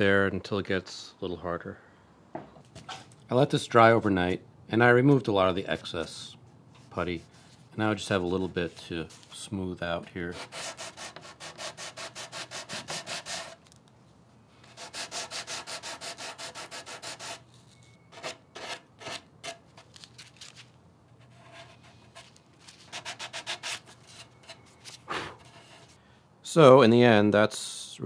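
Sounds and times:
sandpaper scratching strokes: 10.2s - 13.6s, 14.6s - 17.5s, 21.3s - 26.0s.

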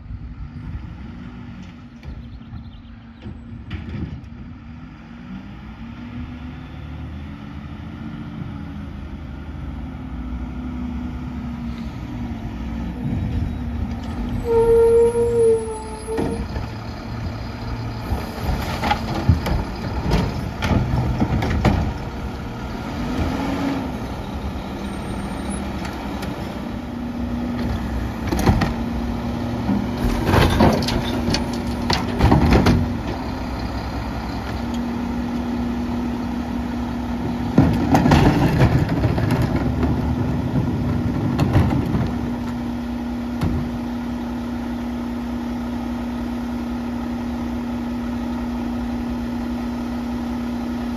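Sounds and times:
diesel engine running: 0.0s - 50.9s
cart banging and clattering: 18.1s - 22.3s, 29.6s - 33.8s, 37.2s - 42.6s.

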